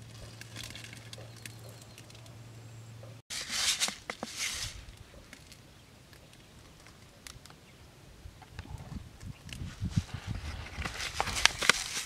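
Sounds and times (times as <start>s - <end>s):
scratching dry sandy soil: 3.3s - 5.3s, 9.4s - 12.0s
hands rustling leaves: 3.3s - 5.6s, 9.6s - 12.0s.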